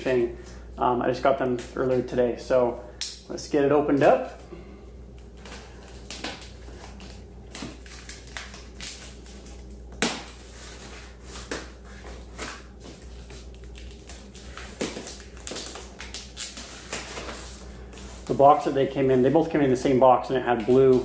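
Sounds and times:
packing tape and cardboard tearing: 5.2s - 18.7s.

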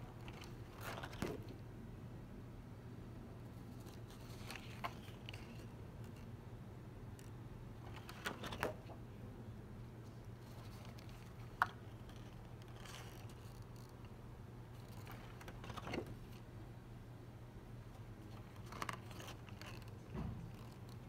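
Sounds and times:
steady low hum: 0.0s - 21.0s
calendar pages flipping: 0.2s - 1.6s, 3.7s - 6.3s, 7.2s - 8.8s, 10.4s - 16.4s, 18.2s - 21.0s.

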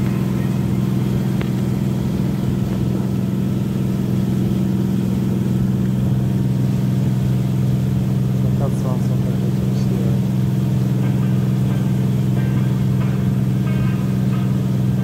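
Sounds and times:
boat engine running: 0.0s - 15.0s.

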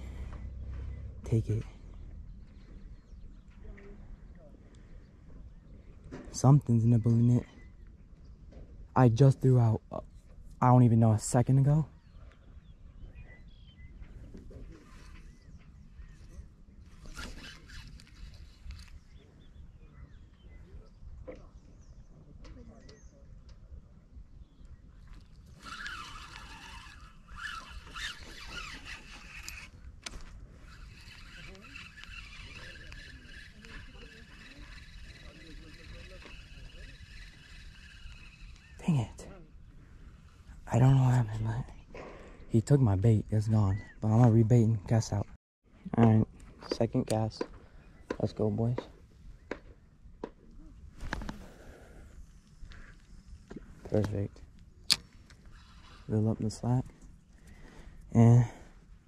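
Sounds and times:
fishing reel gears whirring: 16.9s - 19.0s, 25.3s - 38.8s, 54.9s - 56.3s.

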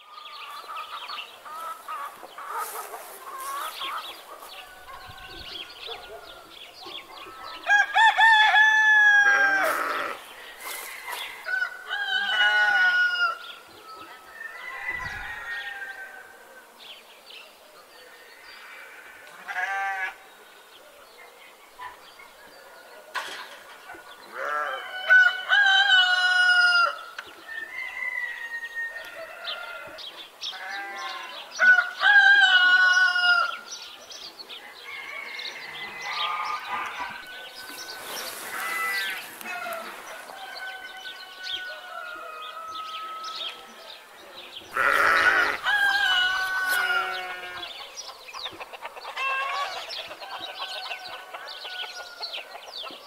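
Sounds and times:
hens clucking: 0.5s - 5.1s, 44.7s - 51.4s
rooster crowing: 7.4s - 13.5s, 14.3s - 16.4s, 24.4s - 30.0s, 31.0s - 33.6s, 34.7s - 43.6s, 44.8s - 47.8s
livestock bleating: 9.3s - 10.3s, 18.7s - 20.2s, 24.3s - 24.8s, 30.5s - 31.4s, 38.4s - 39.9s, 44.7s - 47.7s.

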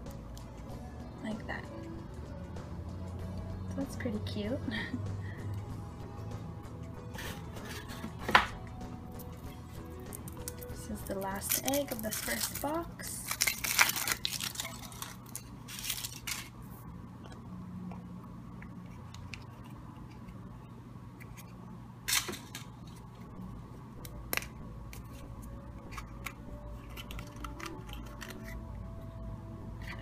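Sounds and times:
low steady hum: 0.0s - 30.0s
chocolate shell cracking: 9.2s - 16.5s, 24.0s - 28.9s
foil wrapper crinkling: 9.8s - 16.6s, 25.9s - 28.6s
plastic capsule clicking open: 25.8s - 28.6s.

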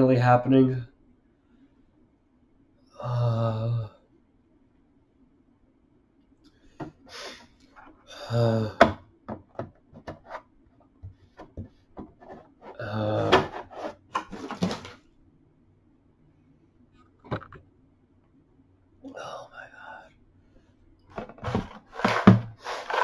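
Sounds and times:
man's wordless vocal sounds: 3.0s - 4.0s, 8.0s - 9.0s, 12.7s - 13.6s.

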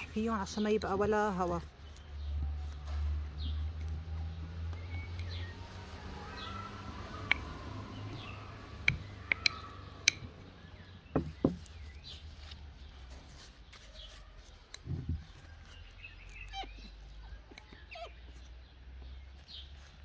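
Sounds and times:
birds chirping faintly: 0.0s - 20.0s
wooden stick knocking on glass jar: 8.8s - 10.4s.

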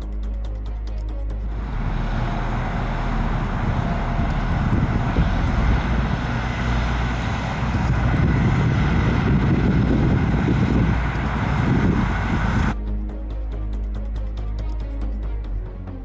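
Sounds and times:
combine harvester running: 1.4s - 12.8s.

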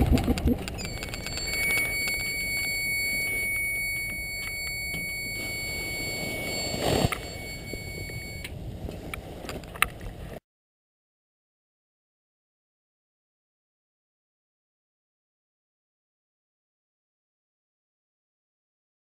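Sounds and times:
low rumble: 0.0s - 10.4s
high-pitched electronic tone: 0.4s - 8.5s.

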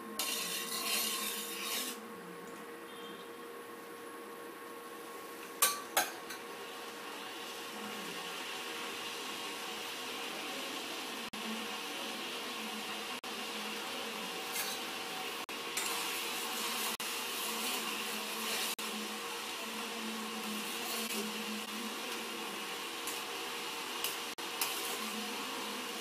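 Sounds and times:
cooktop fan whirr: 0.0s - 26.0s
spoon scraping steel pan: 0.2s - 2.0s, 14.5s - 14.9s, 24.0s - 25.2s.

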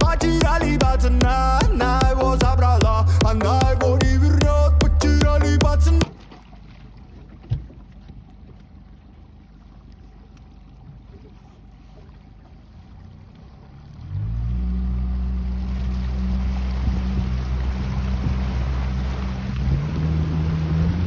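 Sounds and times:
motorboat engine: 0.0s - 21.0s.

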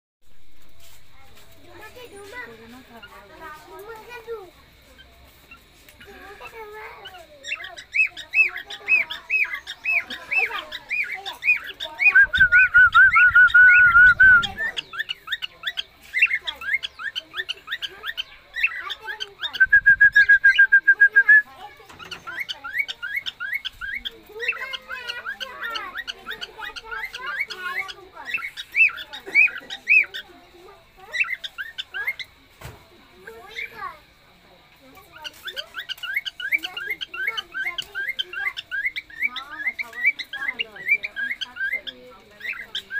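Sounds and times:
loud rapid trilled bird calls: 4.9s - 32.4s, 35.0s - 42.9s
cockatiels chirping: 5.0s - 20.6s, 21.6s - 30.4s, 31.0s - 32.3s, 35.0s - 42.9s.

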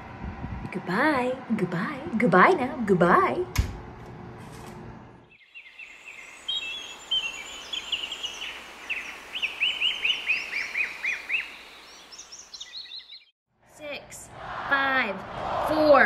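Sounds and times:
birds chirping: 5.2s - 13.3s.

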